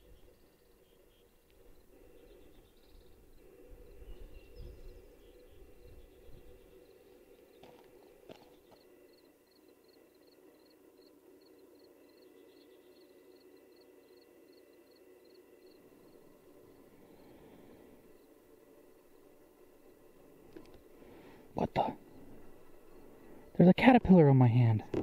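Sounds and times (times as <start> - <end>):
faint chirping animals: 0.0 - 23.7.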